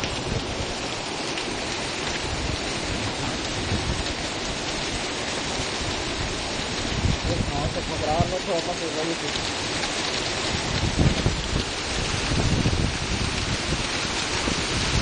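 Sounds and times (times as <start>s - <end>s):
heavy rain pouring: 0.0s - 15.0s.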